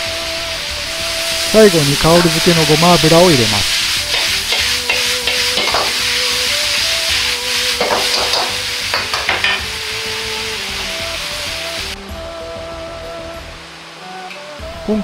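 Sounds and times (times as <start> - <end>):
noodles sizzling in a wok: 0.0 - 15.0
metal ladle scraping a wok: 3.7 - 9.8.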